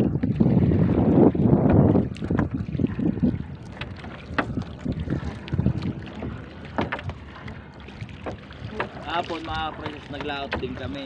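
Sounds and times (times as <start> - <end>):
wind on microphone: 0.0 - 11.0.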